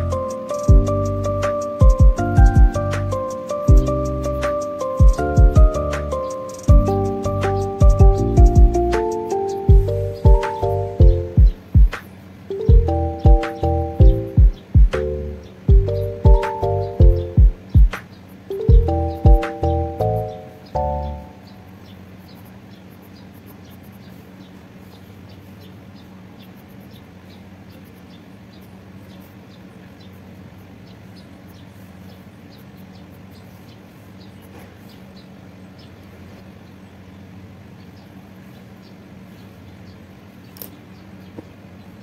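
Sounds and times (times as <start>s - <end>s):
low hum: 0.0s - 22.4s.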